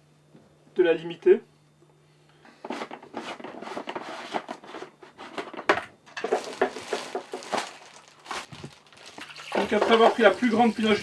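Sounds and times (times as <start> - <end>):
plastic wrapping rustling: 6.1 - 11.0.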